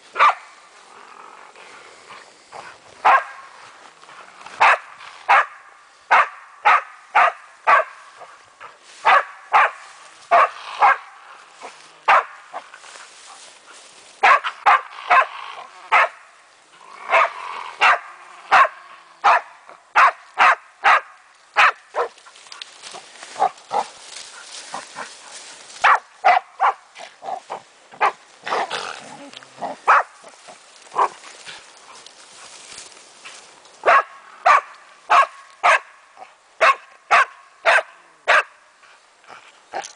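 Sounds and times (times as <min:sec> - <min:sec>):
dog barking: 0:00.2 - 0:00.4, 0:03.0 - 0:03.4, 0:04.6 - 0:08.0, 0:09.0 - 0:11.1, 0:12.1 - 0:12.4, 0:14.2 - 0:15.3, 0:15.9 - 0:16.2, 0:17.1 - 0:22.1, 0:23.4 - 0:23.9, 0:25.8 - 0:26.8, 0:29.8 - 0:30.1, 0:31.0 - 0:31.2, 0:33.8 - 0:35.9, 0:36.6 - 0:38.6.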